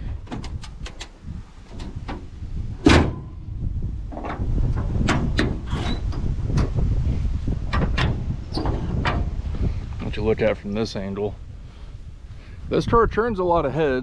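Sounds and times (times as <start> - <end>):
car hood slamming shut: 2.8 - 3.4.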